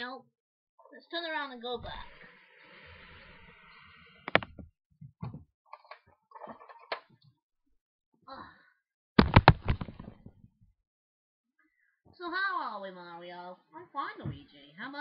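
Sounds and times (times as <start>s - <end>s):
soft knocks and thumps: 4.3s - 5.4s, 9.2s - 10.3s
loud knocks: 9.2s - 10.2s.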